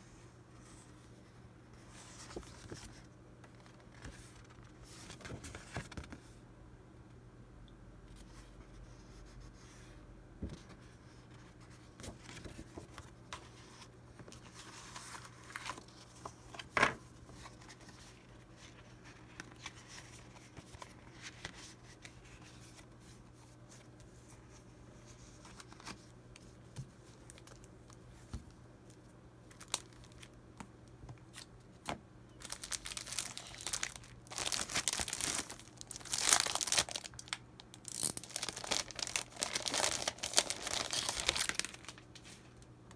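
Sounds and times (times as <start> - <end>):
plastic crinkling: 32.4 - 42.4.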